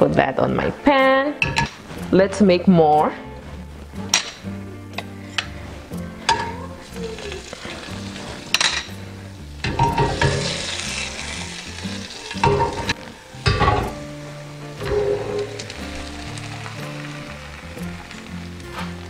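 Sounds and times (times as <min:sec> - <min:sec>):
butter sizzling in a pan: 0:05.2 - 0:19.0
spoon clinking on bowl and pan: 0:06.3 - 0:06.6, 0:08.5 - 0:08.9.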